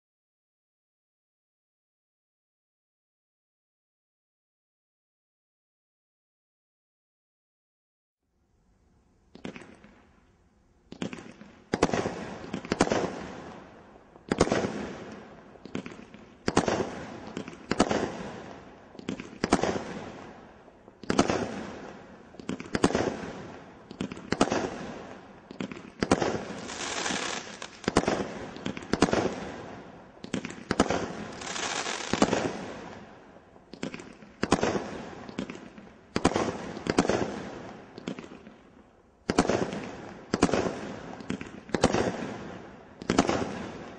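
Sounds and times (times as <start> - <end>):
roman candle firework shots: 10.9 - 38.6, 39.2 - 43.9.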